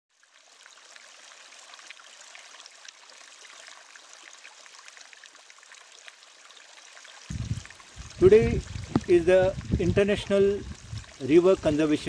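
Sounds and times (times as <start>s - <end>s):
river water trickling over rocks: 0.1s - 12.0s.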